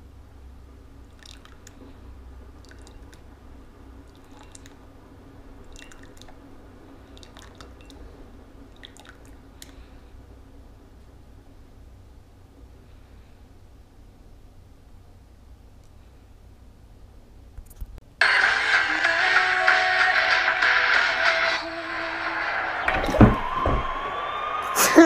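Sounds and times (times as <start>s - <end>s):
low steady hum: 0.0s - 18.2s.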